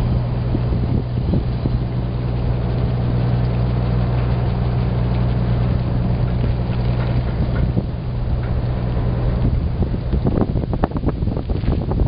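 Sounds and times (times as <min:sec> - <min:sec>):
boat engine idling: 0:00.0 - 0:12.0
wind noise on microphone: 0:00.0 - 0:12.0.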